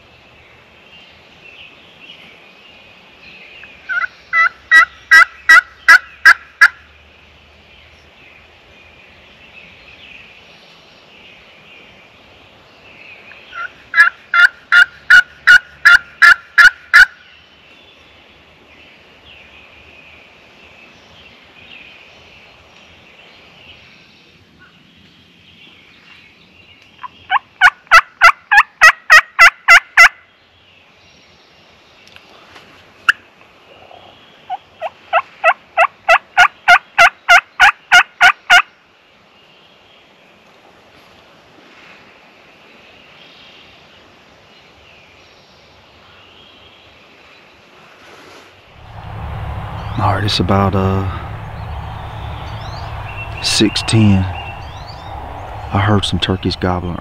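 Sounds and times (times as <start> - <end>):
turkey call hen yelps: 13.6 - 17.1, 27.0 - 30.2, 33.9 - 38.7.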